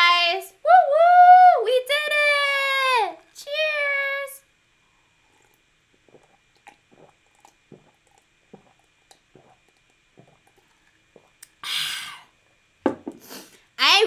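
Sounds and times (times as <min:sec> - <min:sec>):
person gulping a drink: 0:05.0 - 0:12.4.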